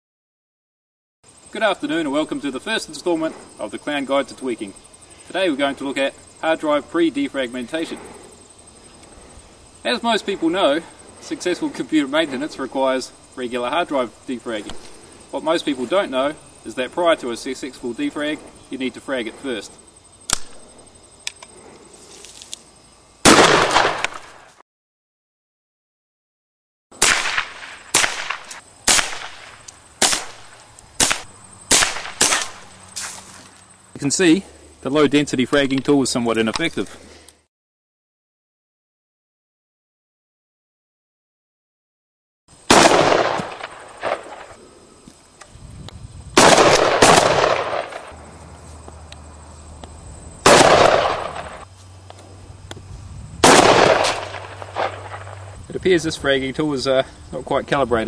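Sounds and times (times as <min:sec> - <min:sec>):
rifle shots echoing: 0:23.3 - 0:24.4, 0:27.0 - 0:32.6, 0:42.7 - 0:44.6, 0:46.4 - 0:48.1, 0:50.4 - 0:51.6, 0:53.4 - 0:55.4.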